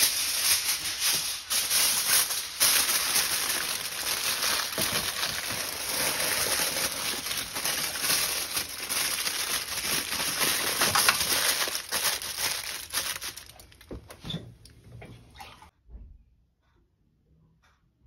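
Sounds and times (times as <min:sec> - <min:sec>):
foil crumpling: 0:00.0 - 0:13.9.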